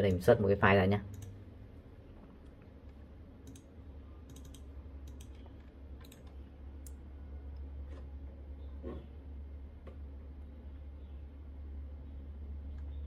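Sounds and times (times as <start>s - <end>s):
steady low hum: 0.0s - 13.0s
mouse and keyboard clicks: 3.4s - 3.7s, 4.3s - 7.0s.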